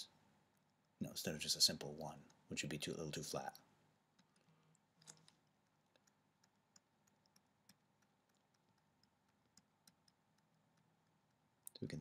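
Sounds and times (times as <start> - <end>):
stylus tapping on drawing tablet: 5.5 - 11.4.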